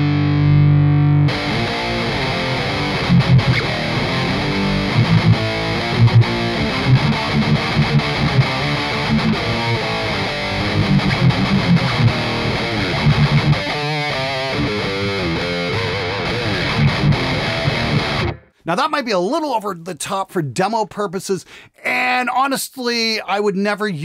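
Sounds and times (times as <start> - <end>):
distorted electric guitar riffing: 0.0 - 18.6.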